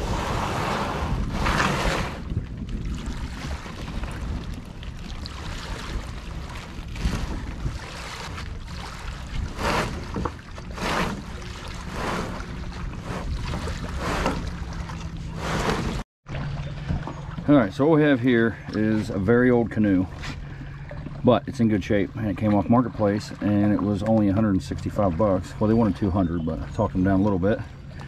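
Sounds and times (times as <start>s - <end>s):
wind rumbling on microphone: 0.0s - 16.0s
canoe splashes and knocks: 0.1s - 28.0s.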